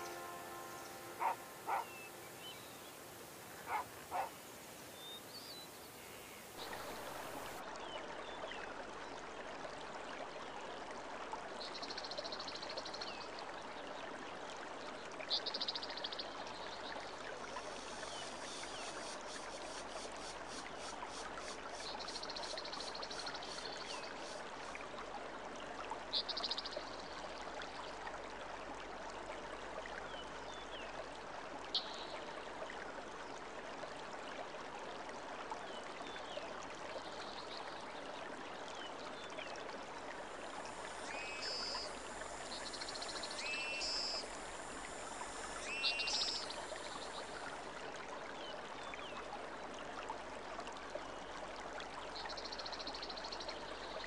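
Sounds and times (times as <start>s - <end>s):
bird calls: 0.0s - 7.6s
running water: 0.0s - 54.0s.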